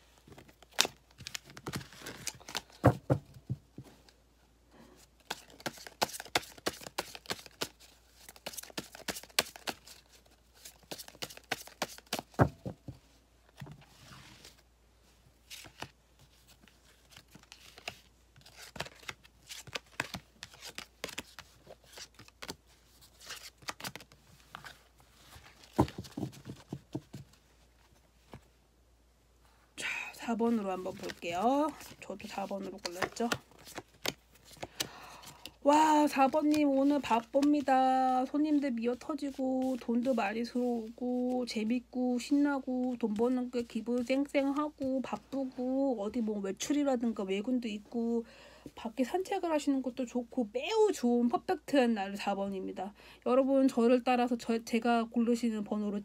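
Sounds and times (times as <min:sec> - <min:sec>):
cards shuffled and dealt: 0:00.2 - 0:04.1, 0:05.2 - 0:14.6, 0:15.4 - 0:27.4, 0:30.9 - 0:37.7, 0:39.2 - 0:40.2.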